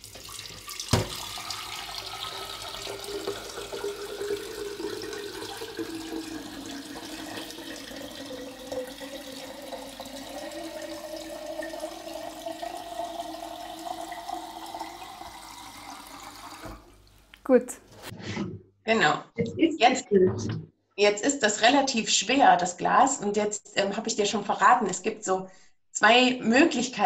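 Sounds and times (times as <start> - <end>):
tap water splashing into jar: 0.0 - 17.0.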